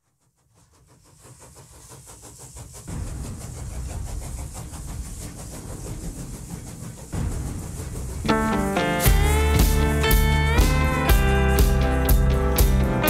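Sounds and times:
steam train chugging: 0:00.3 - 0:13.0.

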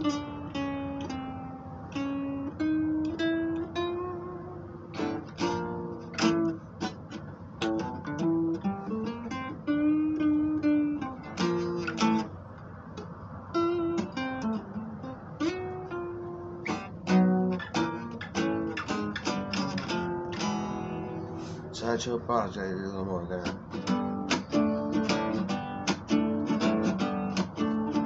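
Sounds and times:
acoustic guitar strumming: 0:00.0 - 0:28.0.

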